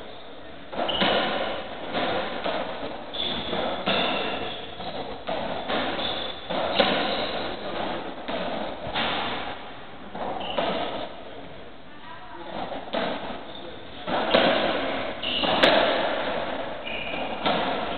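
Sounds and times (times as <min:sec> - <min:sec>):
ball cracking off rackets and walls: 0:00.7 - 0:11.1, 0:12.6 - 0:17.9
shoes squeaking on wooden floor: 0:00.8 - 0:07.8, 0:10.2 - 0:11.1, 0:13.4 - 0:16.2, 0:16.8 - 0:17.9.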